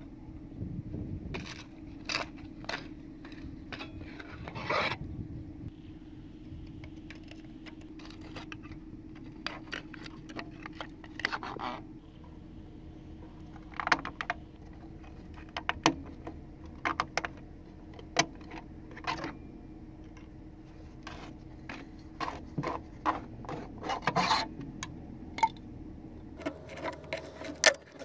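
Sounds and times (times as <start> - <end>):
plastic scraping on concrete: 1.3 - 5.1, 6.9 - 11.9, 20.1 - 25.0, 26.4 - 28.0
plastic parts clicking and tapping: 13.5 - 19.3.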